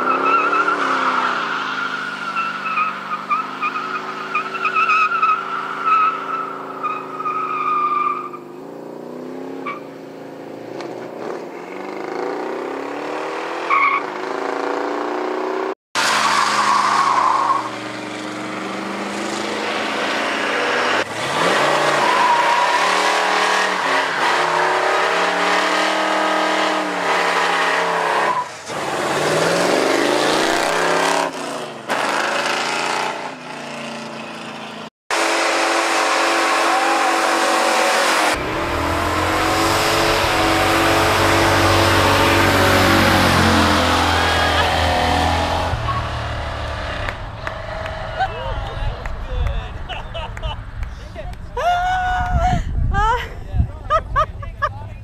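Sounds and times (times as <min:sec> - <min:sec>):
car engine revving: 0:14.3 - 0:50.8.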